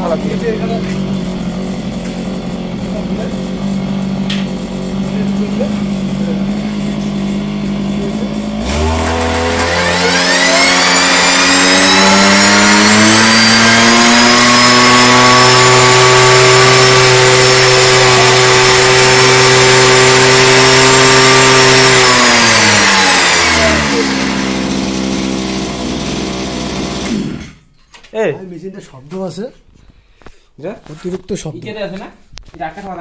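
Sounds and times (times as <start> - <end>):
small two-stroke engine running: 0.0 - 27.6.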